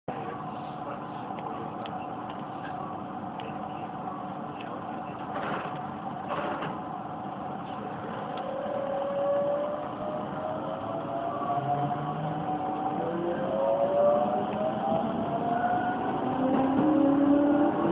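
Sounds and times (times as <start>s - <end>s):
electrical and mechanical hum: 0.1s - 11.2s
traction motor whine rising: 7.4s - 17.9s.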